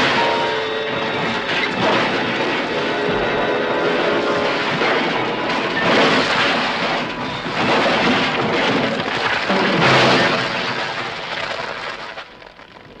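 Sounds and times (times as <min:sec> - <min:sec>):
car crashing down rocks: 0:00.0 - 0:12.7
debris sliding: 0:00.0 - 0:13.0.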